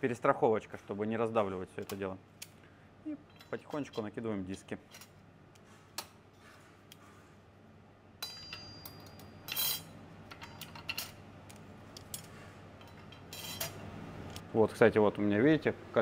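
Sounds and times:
metal ringing: 8.2 - 10.6.

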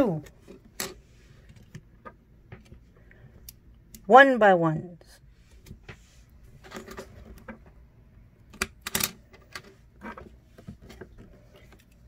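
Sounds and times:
plastic bricks clicking: 8.5 - 9.6.

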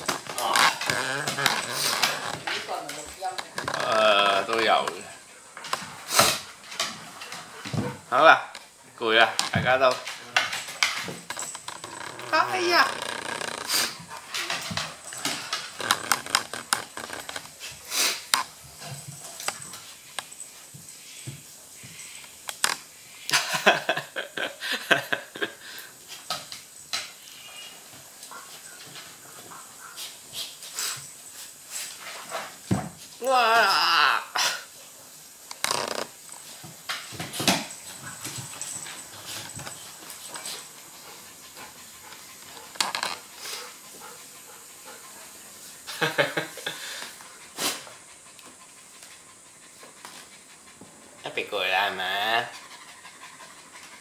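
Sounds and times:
dogs panting and snuffling: 0.0 - 23.7, 24.6 - 33.2, 36.2 - 54.0
dogs huffing and scuffling: 0.0 - 33.2, 34.7 - 54.0
dog claws scrabbling on wood floor: 9.2 - 20.4.

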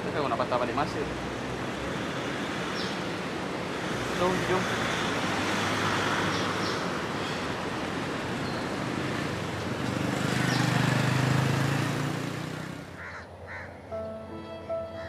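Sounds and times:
road traffic noise: 0.0 - 15.0
small motorcycle passing: 8.7 - 13.2.

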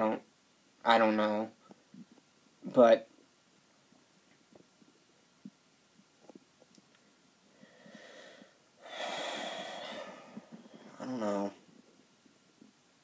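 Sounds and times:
man breathing heavily through nose: 7.5 - 11.0.

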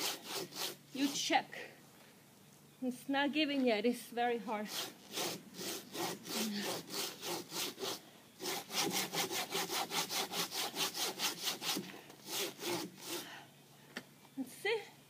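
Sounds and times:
saw cutting wood: 0.0 - 1.3, 4.6 - 13.3.

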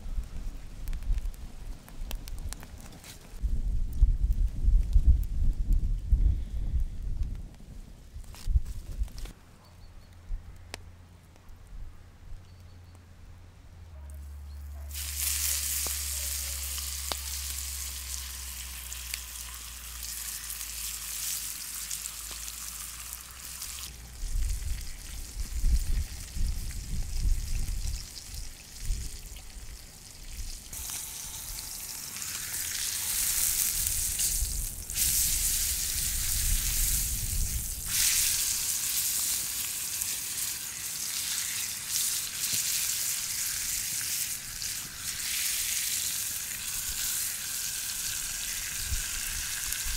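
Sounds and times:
meat sizzling in hot oil: 14.9 - 49.9.

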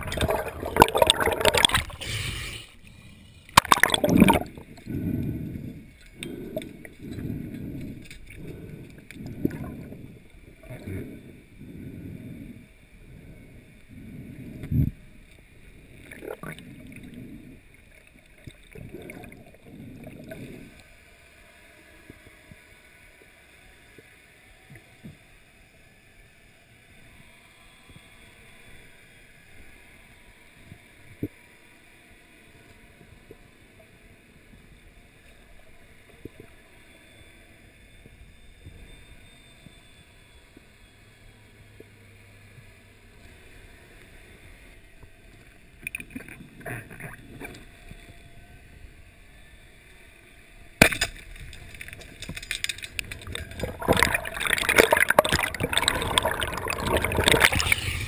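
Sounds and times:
water rushing past camera: 0.0 - 2.1, 3.6 - 4.8, 52.3 - 58.0
bubbling bursts: 0.0 - 2.2, 3.6 - 5.3, 52.3 - 58.0
faint underwater hiss: 0.0 - 27.4.

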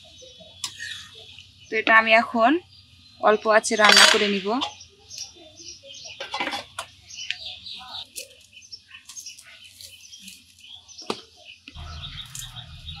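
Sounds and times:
small birds chirping: 0.0 - 13.0
low rumble: 11.8 - 13.0.

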